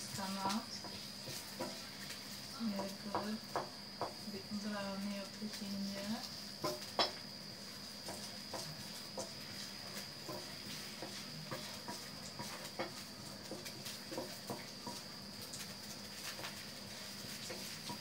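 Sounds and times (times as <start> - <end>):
wooden spatula scraping pan: 0.0 - 4.2, 7.7 - 15.0, 16.0 - 18.0
ginger sizzling in oil: 0.0 - 18.0.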